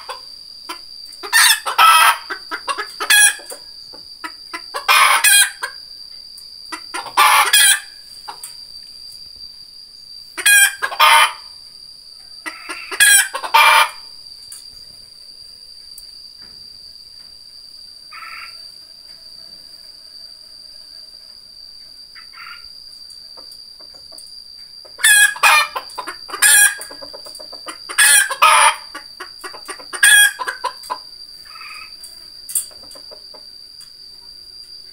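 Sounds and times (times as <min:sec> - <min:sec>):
junglefowl crowing: 0:00.0 - 0:05.8, 0:06.7 - 0:08.4, 0:10.4 - 0:11.5, 0:12.2 - 0:14.1, 0:18.1 - 0:20.9, 0:22.1 - 0:22.7, 0:24.9 - 0:32.0
high-pitched insect drone: 0:00.0 - 0:34.9.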